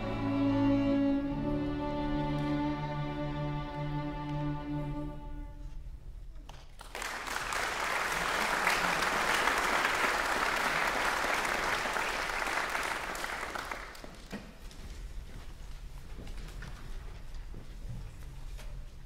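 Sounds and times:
audience applauding: 0:06.7 - 0:14.3.

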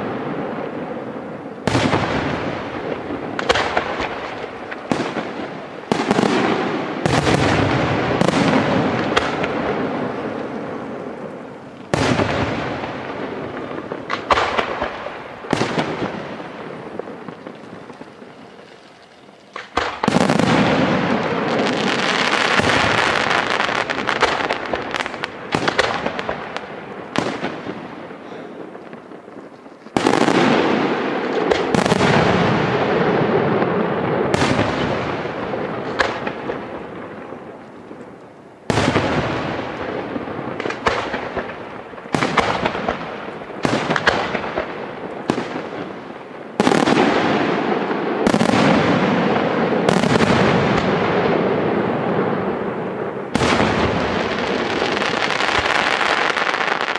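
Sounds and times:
firework crackling: 0:00.0 - 0:56.9
firework shells bursting: 0:01.7 - 0:32.3.

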